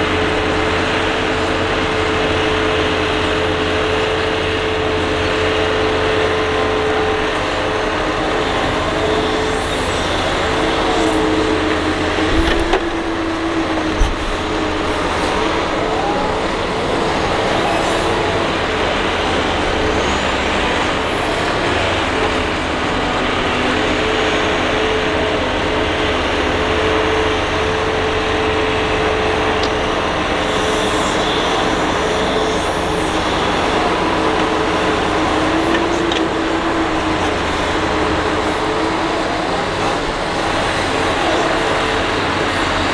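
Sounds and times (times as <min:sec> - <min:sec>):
excavator engine and hydraulics droning: 0:00.0 - 0:42.9.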